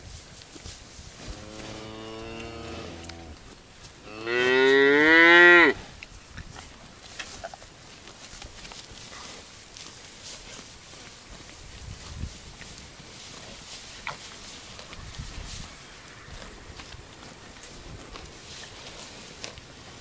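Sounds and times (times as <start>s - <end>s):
cattle mooing: 1.4s - 3.4s.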